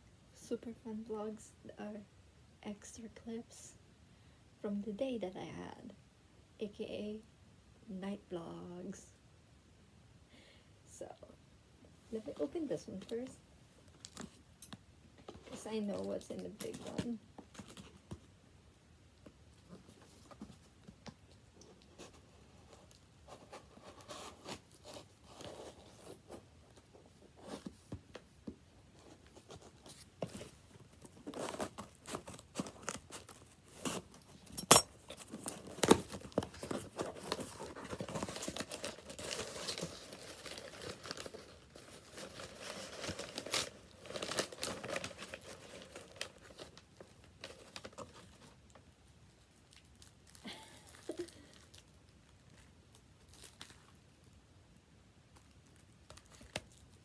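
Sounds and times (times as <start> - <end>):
cardboard box being opened: 35.1 - 46.8
paper rustling: 35.1 - 48.6
packing paper tearing and crumpling: 35.2 - 48.5.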